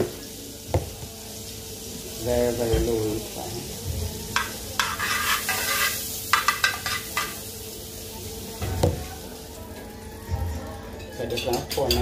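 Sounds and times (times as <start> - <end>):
butter sizzling: 0.0 - 12.0
metal spoon scraping a pan: 4.3 - 7.4.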